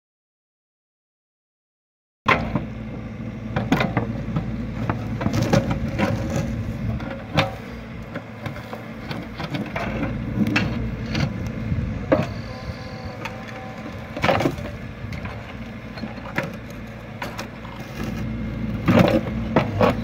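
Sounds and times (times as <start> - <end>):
mini excavator running: 2.3 - 20.0
concrete cracking and scraping: 4.9 - 11.4.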